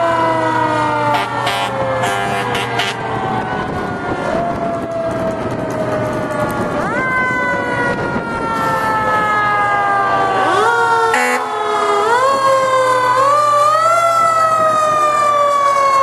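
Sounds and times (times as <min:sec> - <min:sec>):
fire truck siren wailing: 0:00.0 - 0:16.0
fire trucks passing: 0:00.0 - 0:16.0.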